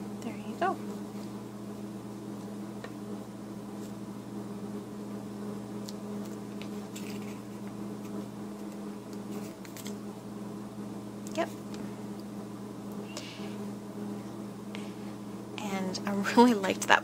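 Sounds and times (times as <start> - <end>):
steady low hum: 0.0 - 17.0
paper and fabric rustling: 6.2 - 10.0.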